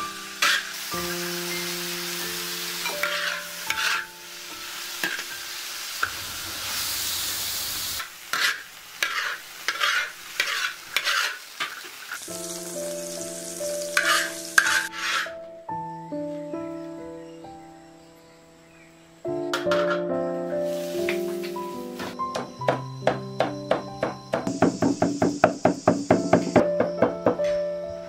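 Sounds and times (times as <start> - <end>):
food sizzling in a wok: 0.0 - 15.4, 19.7 - 22.6, 24.4 - 26.6
metal spatula scraping wok: 0.3 - 0.9, 2.8 - 4.2, 6.0 - 12.0, 13.7 - 15.4, 19.6 - 20.1.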